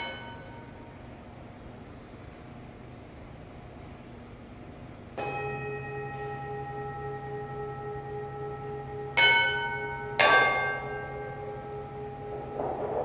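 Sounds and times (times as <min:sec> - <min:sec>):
glass bowl ringing when struck: 0:05.2 - 0:13.0.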